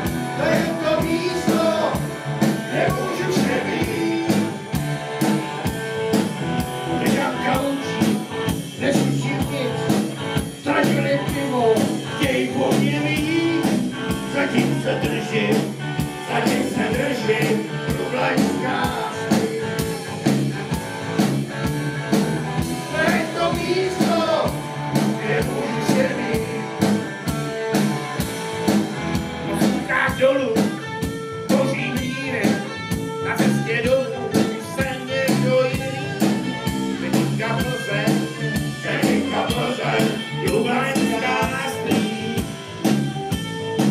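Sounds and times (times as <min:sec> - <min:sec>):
band playing a steady beat: 0:00.0 - 0:43.9
men's choir singing: 0:00.4 - 0:04.6, 0:14.3 - 0:20.0, 0:22.8 - 0:26.8, 0:37.0 - 0:42.4.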